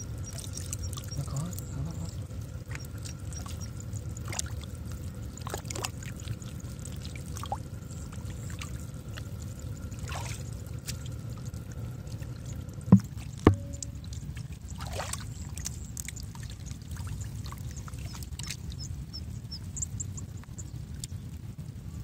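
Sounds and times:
steady low rumble: 0:00.0 - 0:22.0
sharp splashes: 0:02.0 - 0:07.7, 0:09.9 - 0:11.2, 0:12.9 - 0:18.9
hands sloshing in muddy water: 0:02.0 - 0:11.5, 0:14.2 - 0:18.7.

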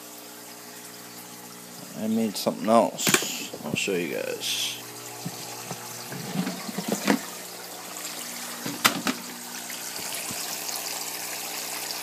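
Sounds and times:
pump humming: 0:00.0 - 0:12.0
water spraying and splashing: 0:05.1 - 0:12.0.

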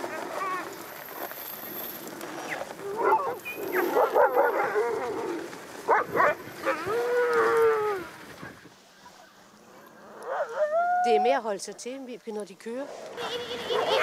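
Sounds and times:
dogs barking and yelping: 0:02.5 - 0:07.9, 0:10.1 - 0:11.3, 0:13.2 - 0:14.0
dog howling: 0:10.2 - 0:11.2.

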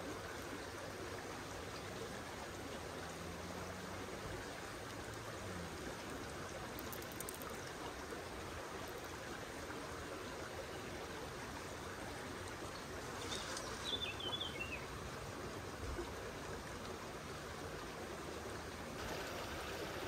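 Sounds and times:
river flowing over stones: 0:00.0 - 0:20.0
bird chirping: 0:13.2 - 0:14.8.

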